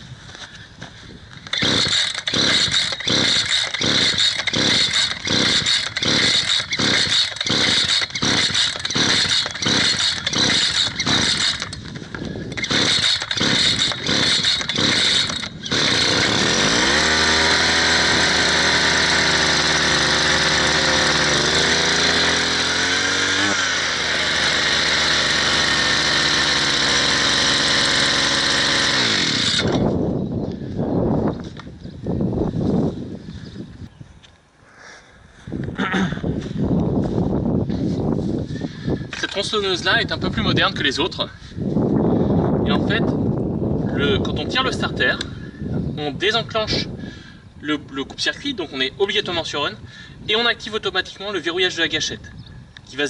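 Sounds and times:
brushcutter engine running: 0:01.4 - 0:30.0
recoil starter pulls: 0:01.4 - 0:30.0.

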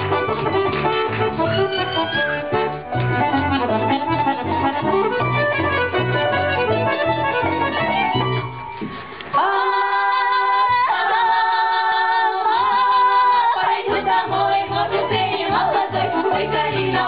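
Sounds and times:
instrumental accompaniment: 0:00.0 - 0:09.4
women's choir singing: 0:09.3 - 0:17.0.

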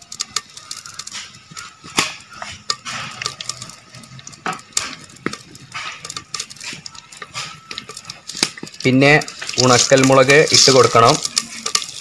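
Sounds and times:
utensils clinking against pot: 0:00.0 - 0:12.0.

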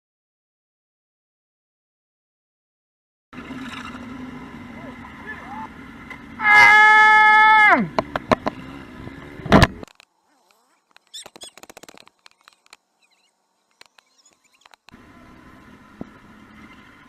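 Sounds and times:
vehicle horn dropping in pitch: 0:06.4 - 0:07.6
faint crackles: 0:08.0 - 0:15.0
sharp clicks: 0:09.5 - 0:12.8, 0:13.7 - 0:15.0.

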